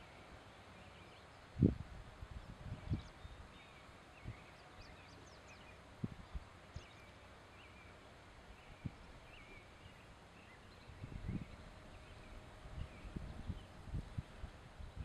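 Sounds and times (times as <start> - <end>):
distant birds chirping: 2.4 - 14.2.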